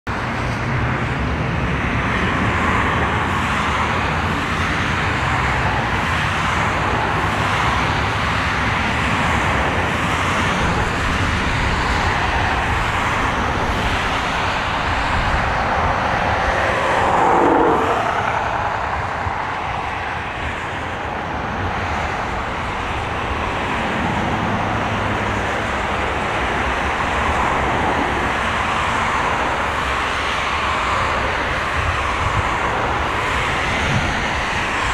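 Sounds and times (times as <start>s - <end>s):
jet engines running: 0.1s - 34.9s
falling whine: 12.4s - 19.8s.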